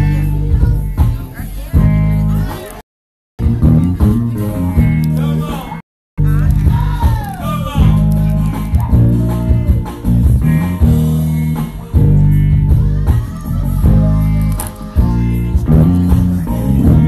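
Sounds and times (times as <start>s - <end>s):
guitar chords strummed: 0.0s - 2.8s, 3.4s - 17.0s
heavy bass guitar line: 0.0s - 2.8s, 3.4s - 17.0s
live band playing: 3.4s - 17.0s.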